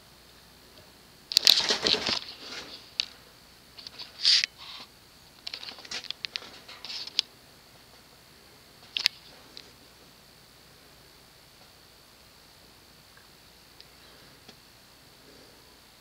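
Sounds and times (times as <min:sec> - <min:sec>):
ceiling fan whirring: 0:00.0 - 0:16.0
crinkling and rustling: 0:01.3 - 0:03.2, 0:03.8 - 0:07.3.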